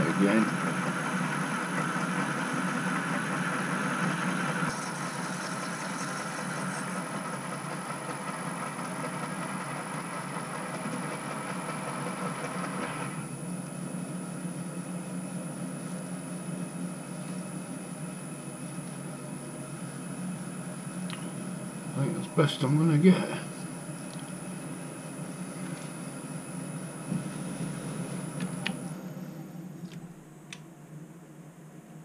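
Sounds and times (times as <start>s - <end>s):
metal lathe humming: 0.0s - 15.7s
hiss of lathe cutting metal: 3.6s - 7.3s.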